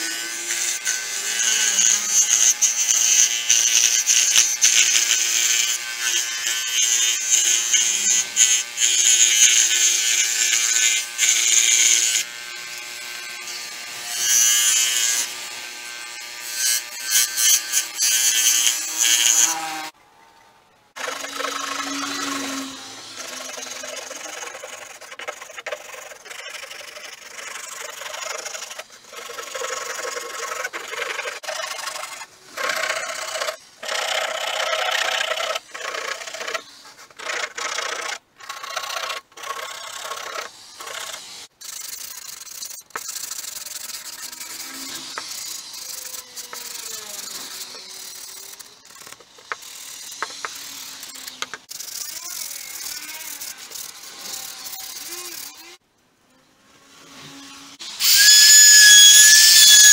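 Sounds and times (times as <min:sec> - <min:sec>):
abrasive rubbing on an axe: 0:40.4 - 0:55.8, 0:57.0 - 0:59.9.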